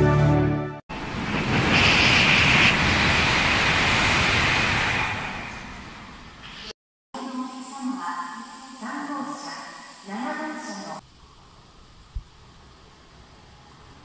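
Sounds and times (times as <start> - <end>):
background music: 0.0 - 0.8
train passing at speed: 0.9 - 6.7.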